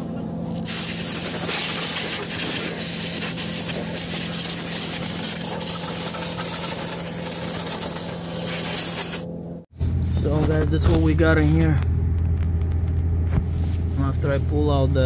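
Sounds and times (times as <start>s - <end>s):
pressure washer spray hiss: 0.6s - 9.2s
low engine hum: 9.2s - 15.0s.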